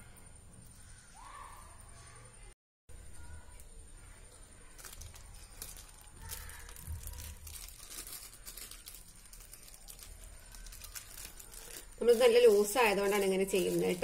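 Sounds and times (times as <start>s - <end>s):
plastic sheet crinkling: 4.6s - 14.0s.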